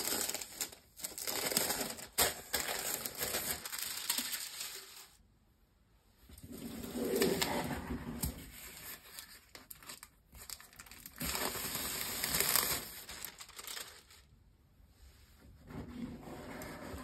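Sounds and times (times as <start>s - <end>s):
plastic wrapping crinkling: 0.0s - 5.2s, 8.6s - 14.3s.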